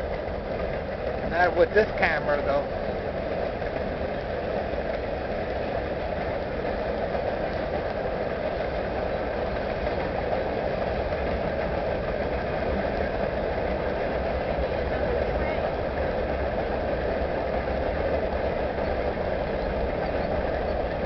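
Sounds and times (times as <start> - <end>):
steel train wheels on rails: 0.0 - 21.0.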